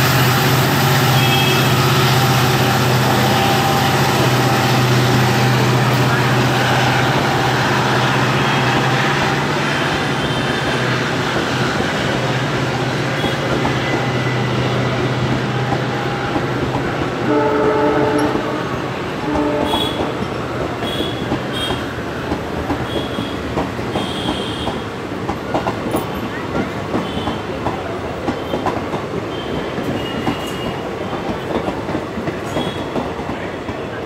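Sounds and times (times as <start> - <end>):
train passing at speed: 0.0 - 34.0
train horn: 0.8 - 11.2, 13.0 - 16.5, 17.1 - 20.2, 20.8 - 21.9, 22.8 - 24.8, 32.5 - 33.0.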